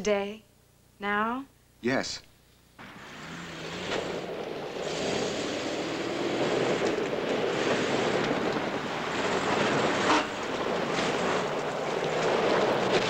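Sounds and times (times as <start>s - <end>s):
car engine running: 2.8s - 13.0s
tyres rushing on dirt and stones: 2.8s - 13.0s.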